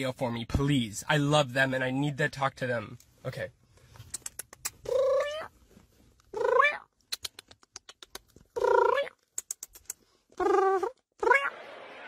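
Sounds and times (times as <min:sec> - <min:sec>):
cat meowing: 0:04.9 - 0:05.5.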